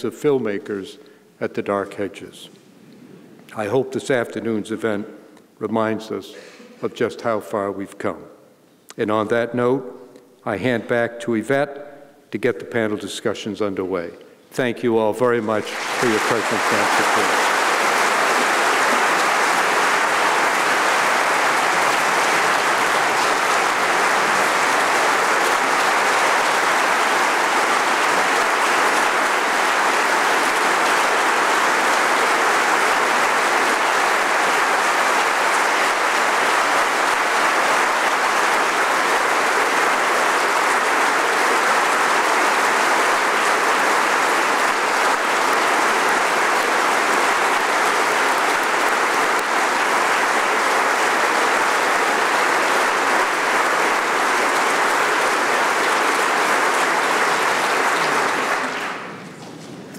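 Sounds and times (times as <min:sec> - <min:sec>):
large audience applauding: 0:15.4 - 0:59.8.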